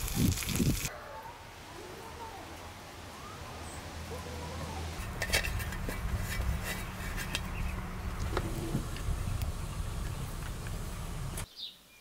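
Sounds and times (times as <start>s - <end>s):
steady low rumble: 5.0s - 11.4s.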